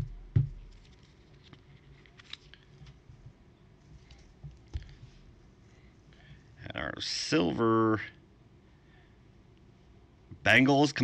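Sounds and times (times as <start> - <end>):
cards knocking on table: 0.0 - 0.9
light clicks and rustles: 0.6 - 5.3.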